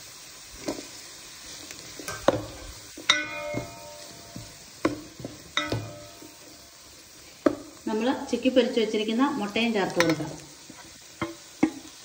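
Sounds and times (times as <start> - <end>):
food sizzling in a pan: 0.0 - 12.0
metal spoon clinking against pan: 2.1 - 6.8.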